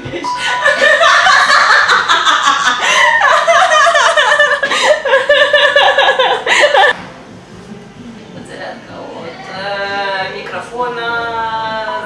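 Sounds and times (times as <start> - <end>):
hearty laughter: 0.6 - 7.0.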